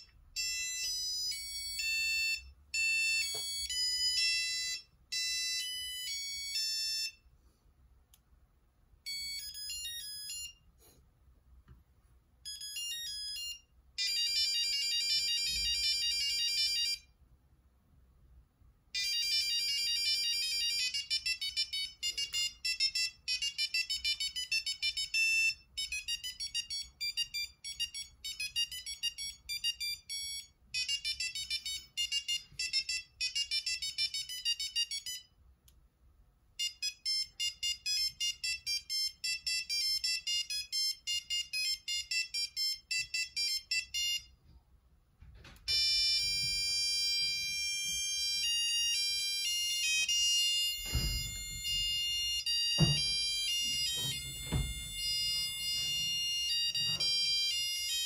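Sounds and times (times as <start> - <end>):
electronic ringtone melodies: 0.0 - 7.3, 9.0 - 10.7, 12.4 - 17.2, 18.9 - 35.4, 36.6 - 44.4, 45.7 - 58.0.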